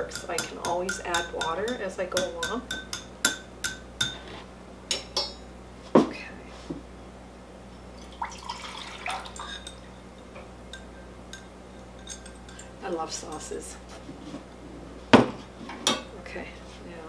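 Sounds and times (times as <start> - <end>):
liquid pouring and splashing: 8.0 - 9.6
whisk clinking against glass: 9.1 - 12.7.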